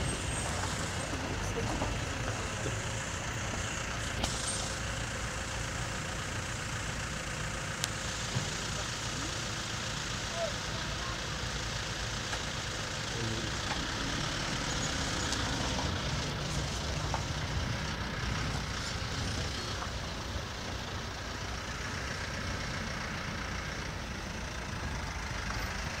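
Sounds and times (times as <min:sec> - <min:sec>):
constant hiss: 0:00.0 - 0:25.9
jeep engine idling: 0:00.0 - 0:26.0.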